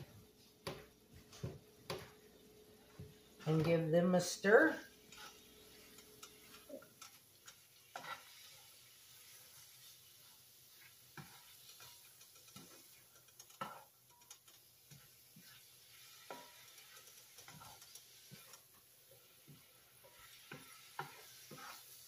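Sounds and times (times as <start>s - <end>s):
greens sizzling in a skillet: 2.9s - 22.0s
spatula scraping a pan: 5.0s - 22.0s.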